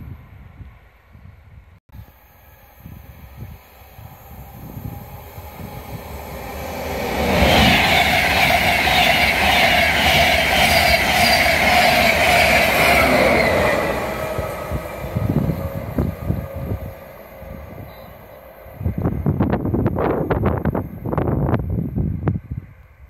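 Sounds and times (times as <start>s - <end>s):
electric locomotive whine: 0.0s - 23.0s
train passing at speed: 0.0s - 23.0s.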